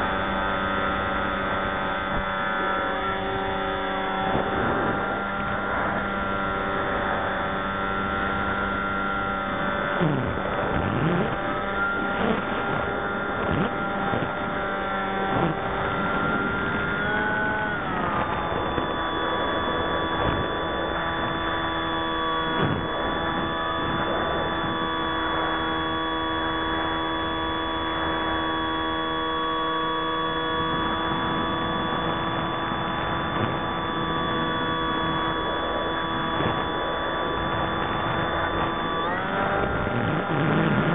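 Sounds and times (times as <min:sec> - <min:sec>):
electric motor and propeller whine: 0:00.0 - 0:40.9.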